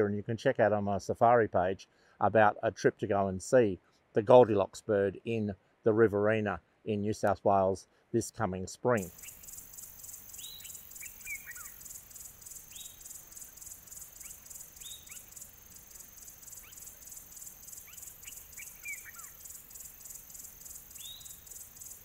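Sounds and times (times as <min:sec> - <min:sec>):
insects chirring: 0:09.0 - 0:22.0
short falling bird chirps: 0:09.2 - 0:20.2.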